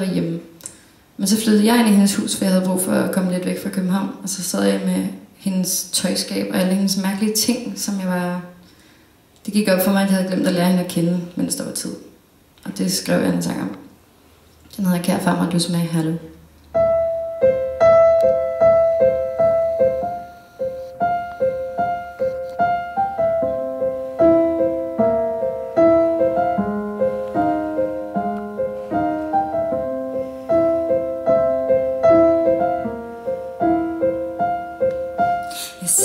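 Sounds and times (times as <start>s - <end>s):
digital piano playing: 16.8s - 36.0s.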